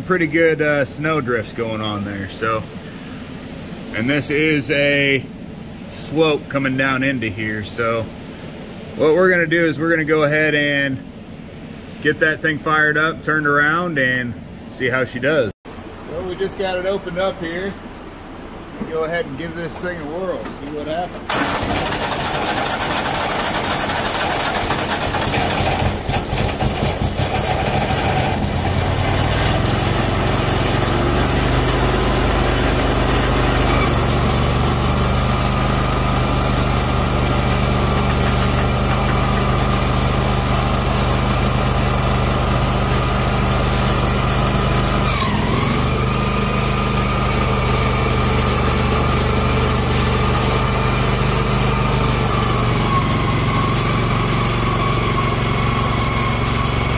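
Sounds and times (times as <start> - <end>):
garden tractor engine running: 18.8 - 56.9.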